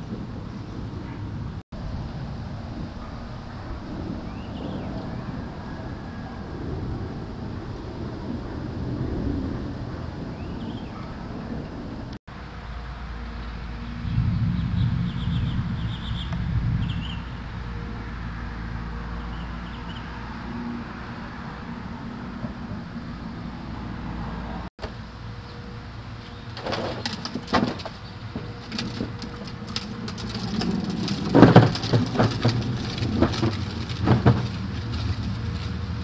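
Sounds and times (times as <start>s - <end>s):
distant traffic rumble: 0.0s - 36.0s
bird chirps: 14.1s - 17.4s
irregular knocks and rustles: 26.2s - 36.0s.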